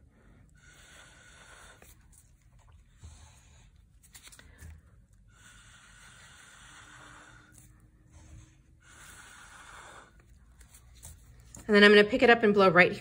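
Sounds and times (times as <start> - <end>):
breath blown through a straw: 0.0 - 2.2, 4.6 - 10.7.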